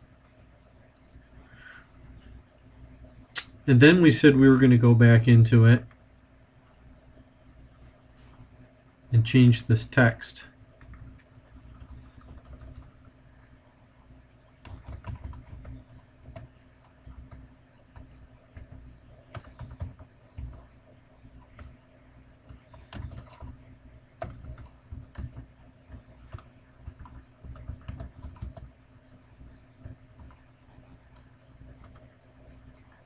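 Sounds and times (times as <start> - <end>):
typing on keyboard: 10.8 - 13.1, 14.6 - 20.7, 21.4 - 21.8, 22.4 - 23.6, 24.2 - 28.7, 29.8 - 32.2.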